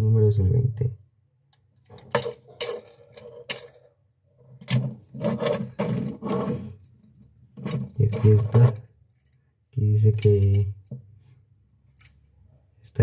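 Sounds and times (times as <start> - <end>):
toy car scraping on wood: 4.8 - 6.9, 7.6 - 8.8.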